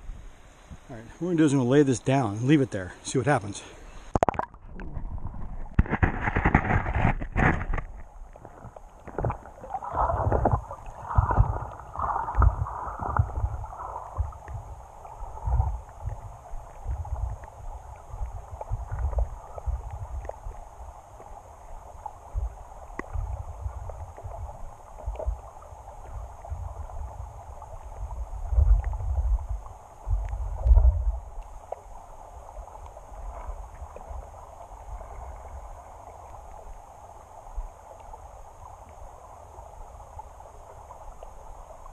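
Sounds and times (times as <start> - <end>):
muffled underwater rumble: 3.8 - 41.9
knocks underwater: 4.1 - 14.6, 30.1 - 31.1.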